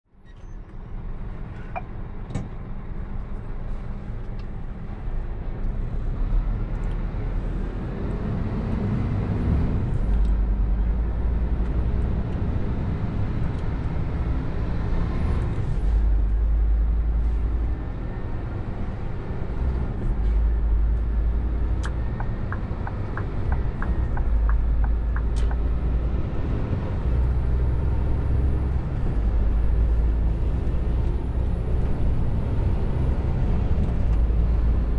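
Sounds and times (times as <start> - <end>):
diesel truck engine rumble: 0.1 - 34.9
rapid ticks: 21.8 - 25.6.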